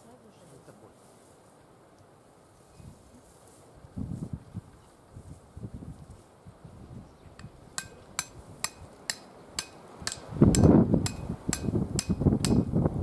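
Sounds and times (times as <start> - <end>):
wind buffeting microphone: 3.8 - 9.0, 9.6 - 13.0
hammer striking iron stake: 7.4 - 12.7.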